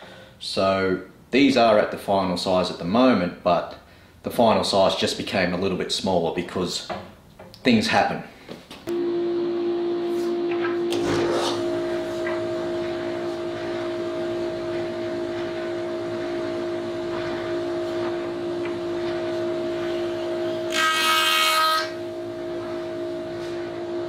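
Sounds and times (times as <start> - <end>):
jointer humming: 8.9 - 24.0
jointer cutterhead whining cut: 19.6 - 22.2.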